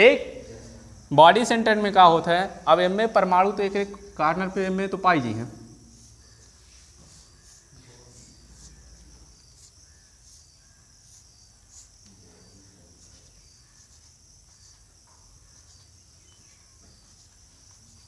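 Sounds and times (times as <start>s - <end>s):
crickets chirring: 0.0s - 18.0s
chalk on blackboard: 5.9s - 18.0s.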